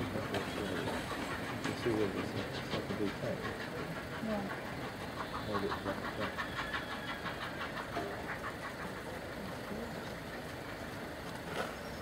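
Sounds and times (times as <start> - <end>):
steam train rhythmic beat: 0.0 - 9.4
train low rumble: 0.0 - 12.0.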